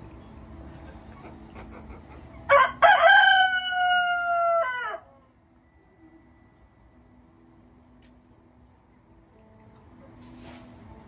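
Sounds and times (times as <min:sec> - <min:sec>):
rooster crowing: 0:02.5 - 0:05.3.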